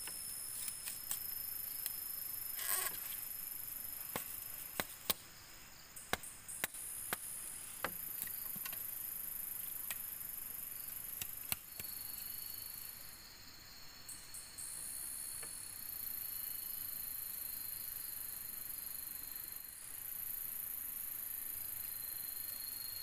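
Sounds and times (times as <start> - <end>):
high insect trill: 0.0 - 23.0
knife chopping bamboo: 4.1 - 5.2, 6.1 - 8.8, 11.2 - 11.9.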